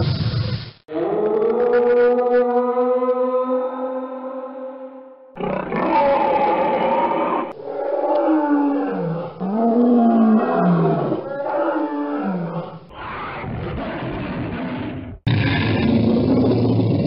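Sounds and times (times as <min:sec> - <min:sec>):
dinosaur roars: 0:05.4 - 0:17.0.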